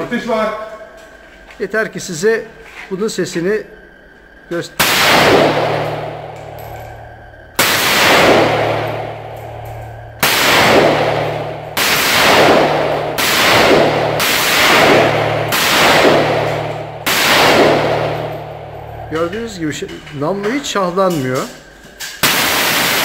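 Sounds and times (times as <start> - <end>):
rifle shots echoing: 4.8 - 7.0, 7.6 - 19.8, 22.2 - 23.0.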